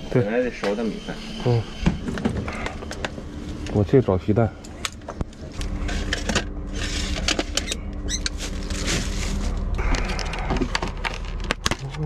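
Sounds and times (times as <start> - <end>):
fridge hum: 0.0 - 12.0
plastic bags rustling: 5.6 - 12.0.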